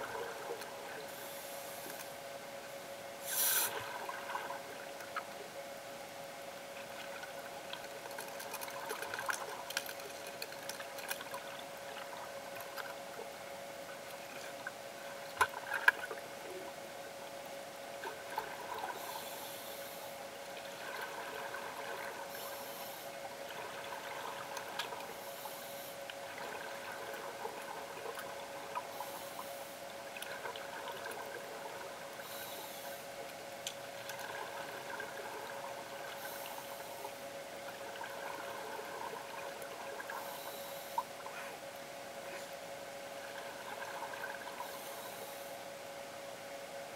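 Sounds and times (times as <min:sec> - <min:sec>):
underwater hum: 0:00.0 - 0:46.9
scuba exhaust bubbles: 0:33.8 - 0:41.5.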